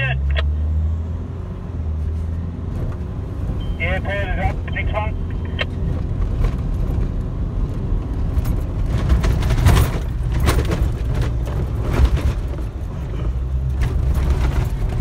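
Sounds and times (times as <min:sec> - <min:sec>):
engine drone under load: 0:00.0 - 0:15.0
vehicle knocks and rattles: 0:05.5 - 0:15.0.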